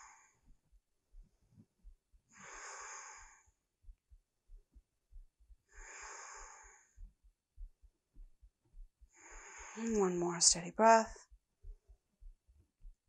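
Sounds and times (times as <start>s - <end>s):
person breathing slowly: 0.0s - 0.5s, 2.3s - 3.6s, 5.7s - 7.1s, 9.1s - 9.9s.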